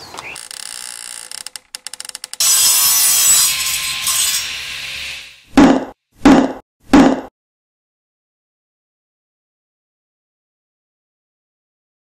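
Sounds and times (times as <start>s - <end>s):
rasping sawing noise: 0.4s - 6.0s.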